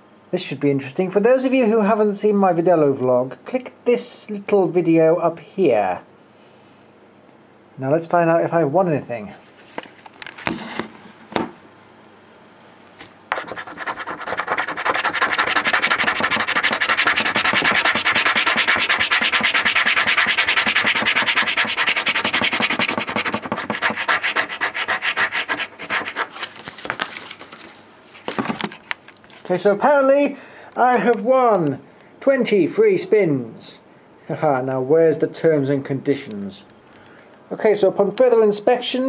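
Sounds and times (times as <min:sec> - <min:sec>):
scratch card being scratched: 0:13.3 - 0:27.0.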